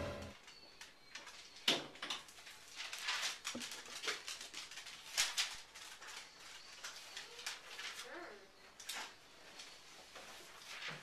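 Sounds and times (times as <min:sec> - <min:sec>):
magazine pages rustling: 0:02.3 - 0:08.2, 0:08.8 - 0:11.0.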